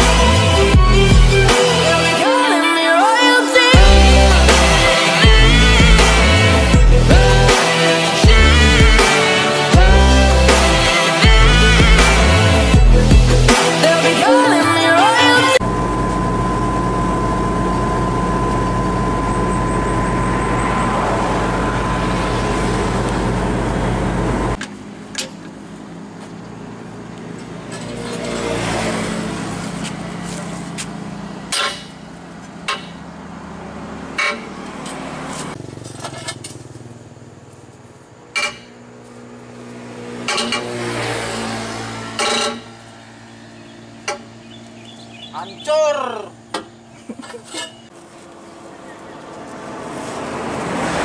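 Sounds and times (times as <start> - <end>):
heavy diesel engine running: 3.7 - 13.6, 15.5 - 51.0
engine ticking over: 29.7 - 45.6
wheel wrench clanking on metal: 31.5 - 33.2, 34.1 - 36.8, 38.3 - 38.8, 40.2 - 40.8, 42.1 - 42.9, 46.5 - 47.9.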